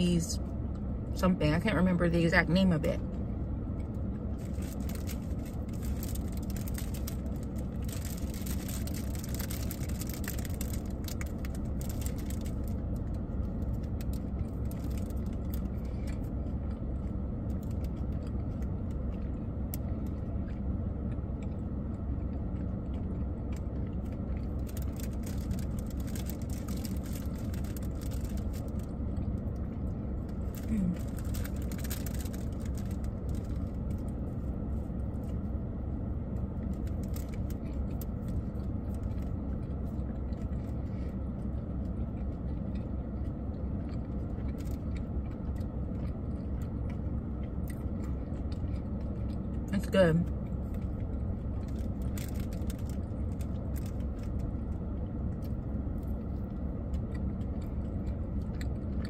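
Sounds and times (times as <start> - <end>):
car idling rumble: 0.0 - 59.0
plastic bag crinkling: 4.4 - 12.8, 24.5 - 28.9, 30.4 - 34.1, 36.7 - 38.4, 51.6 - 54.4.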